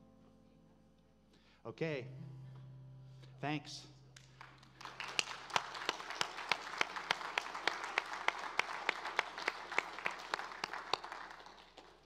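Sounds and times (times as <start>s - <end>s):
congregation applauding: 4.2s - 12.0s
nearby person clapping evenly: 4.2s - 12.0s.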